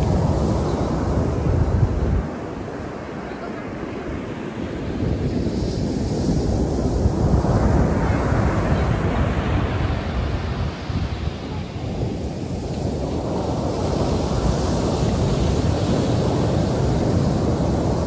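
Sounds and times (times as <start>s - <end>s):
ocean surf breaking on sand: 0.0s - 18.0s
wind rumbling on microphone: 0.0s - 18.0s.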